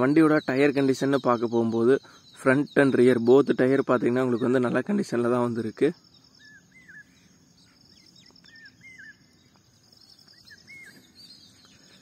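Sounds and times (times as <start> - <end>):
bird chirping: 0.0 - 12.0
insect trill: 0.0 - 12.0.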